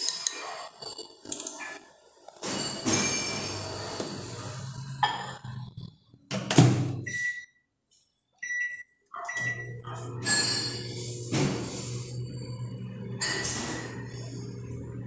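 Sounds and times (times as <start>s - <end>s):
microwave oven humming: 9.3s - 15.0s.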